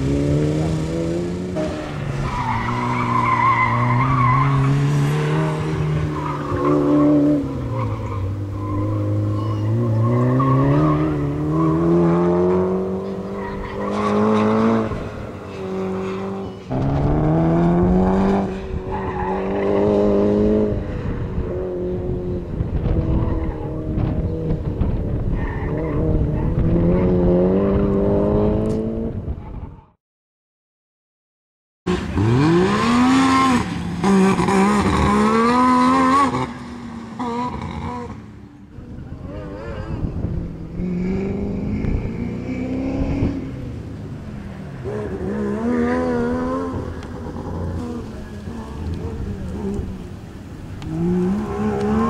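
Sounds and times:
car engine revving hard: 0:00.0 - 0:07.9, 0:31.9 - 0:38.2, 0:40.6 - 0:43.8, 0:44.8 - 0:50.0.

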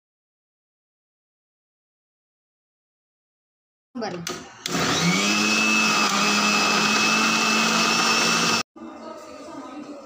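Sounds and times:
mixer grinder motor: 0:04.2 - 0:08.6.

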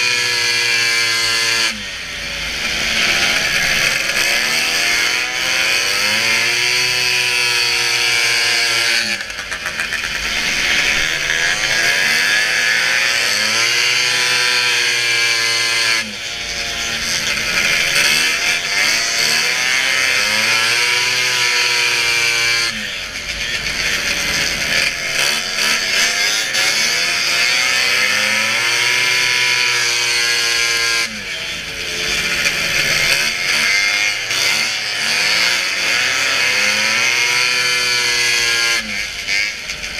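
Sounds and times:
snowmobile engine at high revs: 0:00.0 - 0:39.9.

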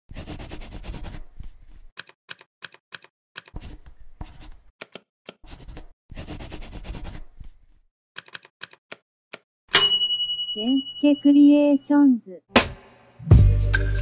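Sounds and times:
typing on a keyboard: 0:02.0 - 0:03.6, 0:08.2 - 0:09.4.

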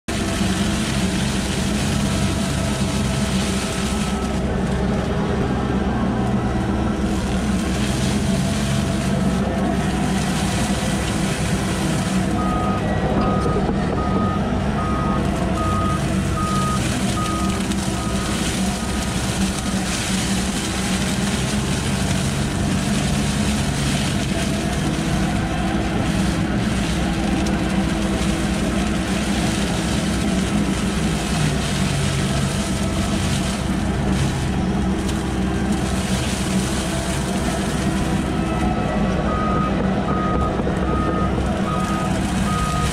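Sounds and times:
excavator engine running: 0:00.0 - 0:42.9
mower cutting tall grass: 0:00.0 - 0:42.9
warning beeper beeping: 0:12.3 - 0:18.4.

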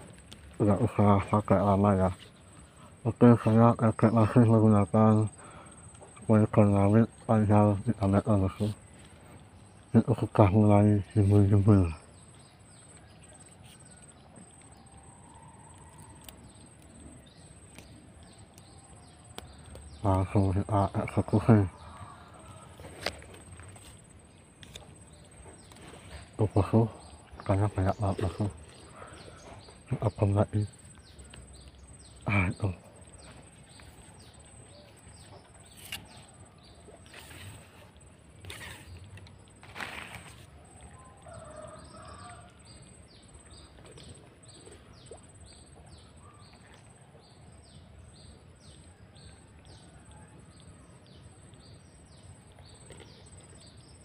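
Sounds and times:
bird chirping: 0:00.0 - 0:39.6
insect trill: 0:14.0 - 0:25.3.

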